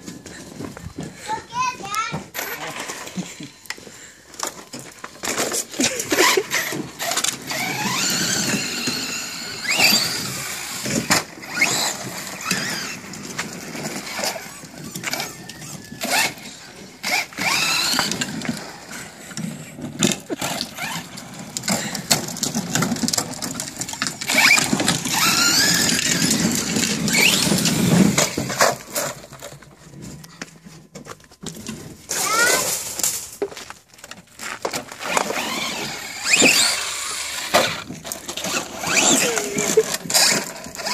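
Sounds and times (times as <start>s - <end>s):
tyre noise: 0.0s - 40.9s
electric motor whine: 6.4s - 19.2s, 24.2s - 28.2s, 35.0s - 40.9s.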